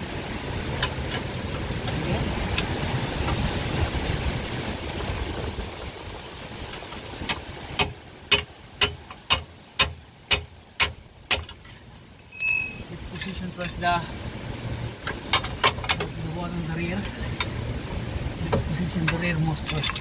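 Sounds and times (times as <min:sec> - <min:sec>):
vehicle engine rumble: 0:00.0 - 0:20.0
hammer striking metal: 0:07.3 - 0:11.6
ringing metal clink: 0:12.2 - 0:13.4.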